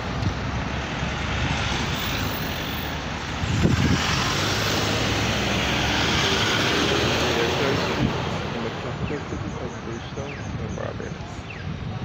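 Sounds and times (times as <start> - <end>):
car driving past: 0.0 - 9.4.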